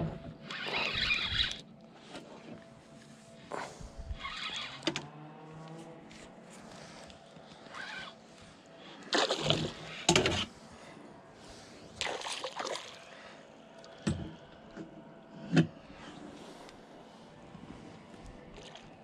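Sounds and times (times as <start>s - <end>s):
water splashing beside kayak: 12.0s - 13.2s.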